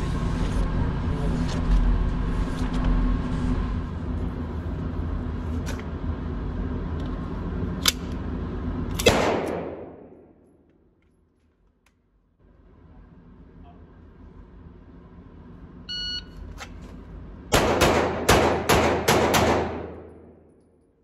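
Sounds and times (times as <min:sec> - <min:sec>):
steady low rumble: 0:00.0 - 0:11.4
pistol shots echoing: 0:09.0 - 0:10.2, 0:17.5 - 0:20.4.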